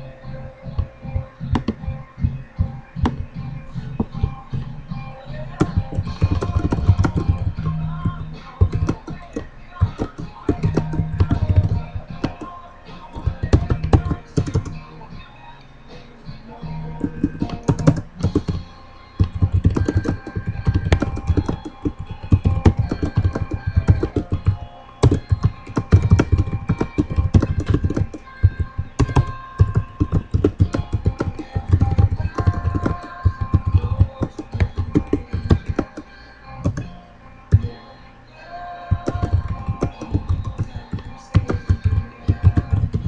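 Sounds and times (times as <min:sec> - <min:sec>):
background music: 0:00.0 - 0:43.0.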